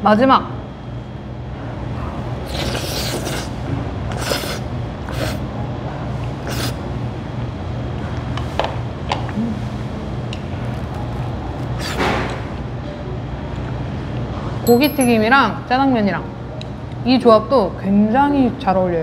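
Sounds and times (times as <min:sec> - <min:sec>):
steady low hum: 0:00.0 - 0:18.6
person slurping noodles: 0:02.4 - 0:05.4, 0:06.4 - 0:06.8, 0:11.8 - 0:12.0.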